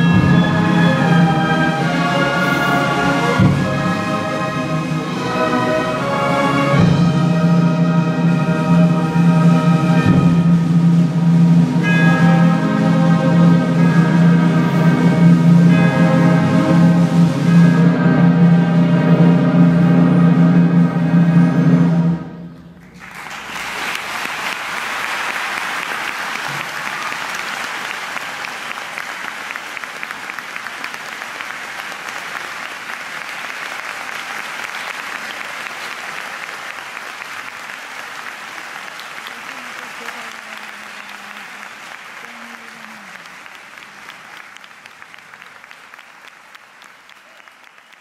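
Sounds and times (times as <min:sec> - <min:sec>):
orchestra chord: 0:00.0 - 0:22.5
audience applauding: 0:22.8 - 0:48.0.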